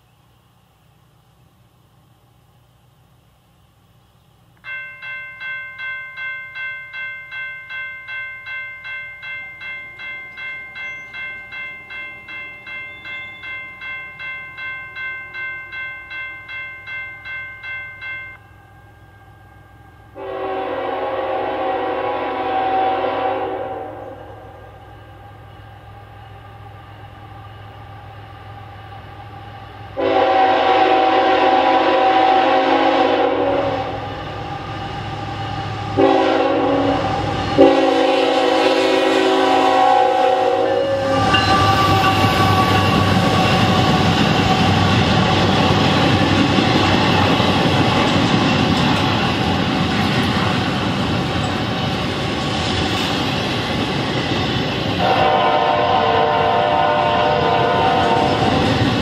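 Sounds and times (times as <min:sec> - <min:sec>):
train rumble and wheel clatter: 0:00.0 - 0:59.0
electronic crossing bell ringing: 0:04.6 - 0:20.3, 0:41.2 - 0:44.4
locomotive horn blasts: 0:20.2 - 0:24.7, 0:30.0 - 0:34.0, 0:36.0 - 0:43.9, 0:55.0 - 0:58.6.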